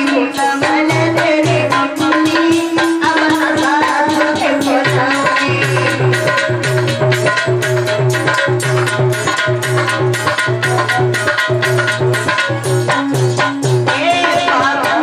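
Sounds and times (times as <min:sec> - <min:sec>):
folk dance music: 0:00.0 - 0:15.0
hand drums fast beat: 0:00.0 - 0:15.0.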